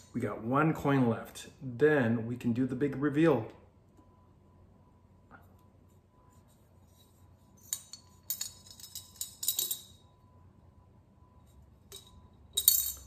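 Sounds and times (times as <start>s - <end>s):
coin rattling inside coin bank: 7.6s - 10.0s, 11.9s - 13.0s.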